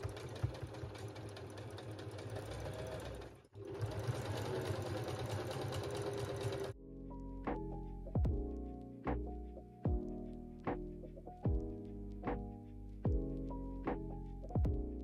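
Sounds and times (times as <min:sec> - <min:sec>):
sewing machine stitching: 0:00.0 - 0:06.8.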